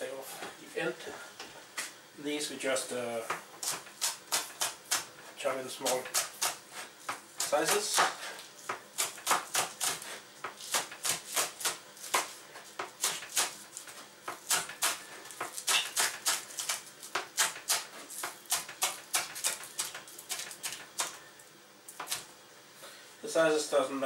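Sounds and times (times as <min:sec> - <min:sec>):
knife chopping on cutting board: 0:03.6 - 0:05.1, 0:05.8 - 0:13.6, 0:14.3 - 0:21.2.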